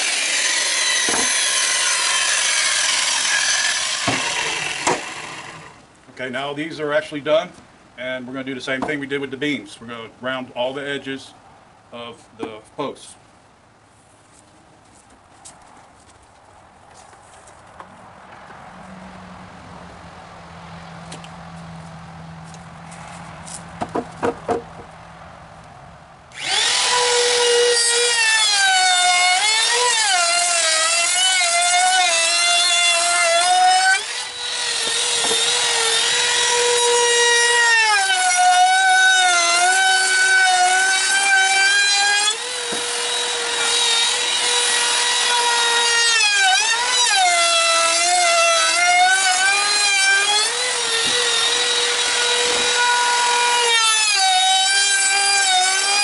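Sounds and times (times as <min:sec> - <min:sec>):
router whining cutting wood: 0:00.0 - 0:05.8, 0:26.3 - 0:56.0.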